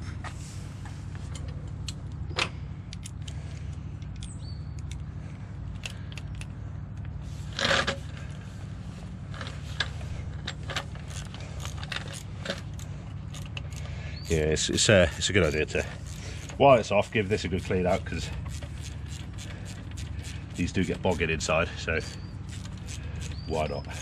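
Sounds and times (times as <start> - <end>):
low hum: 0.0 - 24.0
hand tools clicking and rattling: 9.4 - 24.0.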